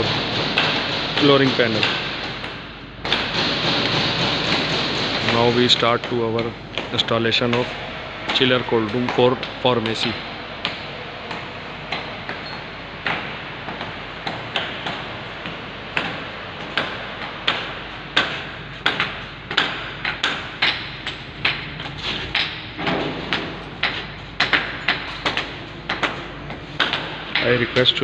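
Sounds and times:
hand tools knocking on concrete: 0:23.3 - 0:28.0.

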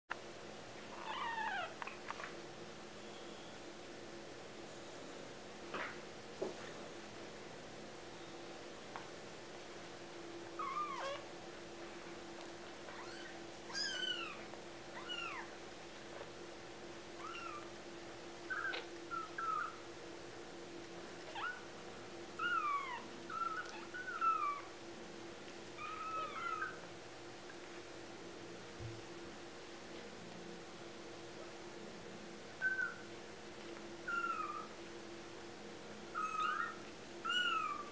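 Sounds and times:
faint steady hum: 0:00.1 - 0:37.9
kittens mewing: 0:10.6 - 0:11.2, 0:25.8 - 0:26.8.

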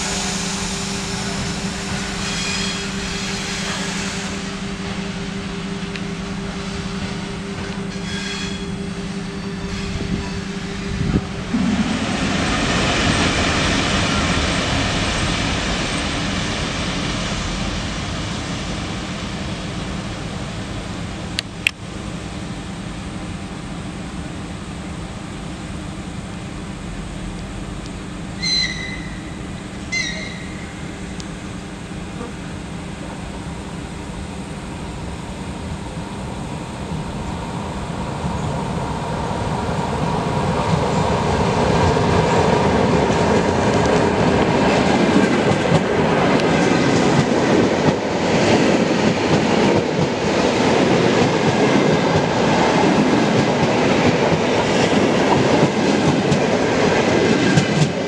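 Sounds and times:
train rumbling: 0:00.0 - 0:58.0
high-pitched whistle toots: 0:28.4 - 0:30.7.

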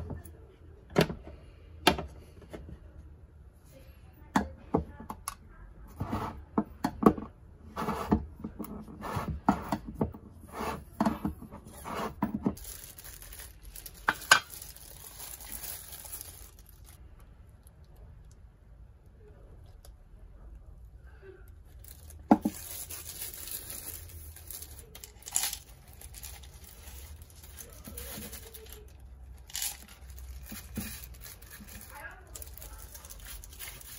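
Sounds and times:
plastic glove crinkling: 0:12.5 - 0:17.0, 0:21.6 - 0:33.9.

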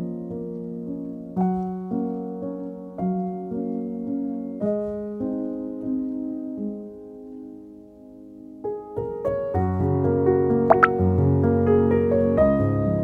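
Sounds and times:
gentle slow piano piece: 0:00.0 - 0:13.0.

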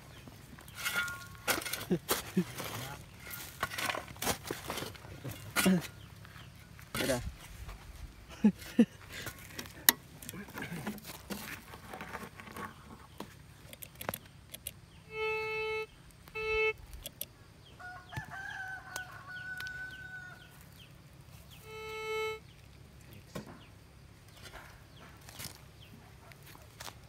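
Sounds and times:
short honks: 0:15.1 - 0:16.8, 0:21.6 - 0:22.5
rooster crowing: 0:17.6 - 0:20.7.

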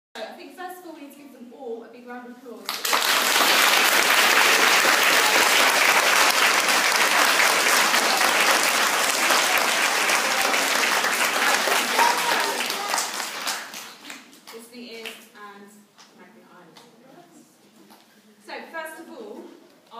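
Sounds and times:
crowd applauding: 0:02.7 - 0:14.4.

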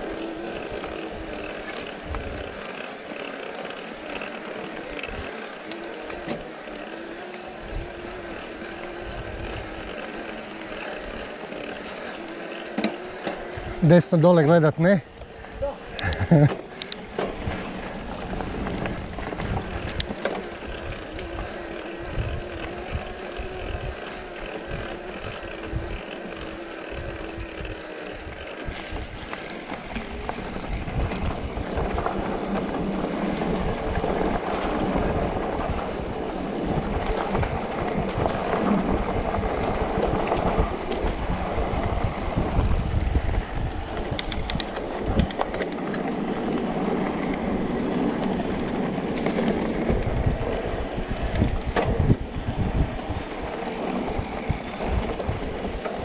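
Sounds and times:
steady motor whine: 0:00.0 - 0:14.2, 0:15.0 - 0:44.3, 0:53.5 - 0:56.0
bike tyres rolling on dirt: 0:00.0 - 0:56.0.

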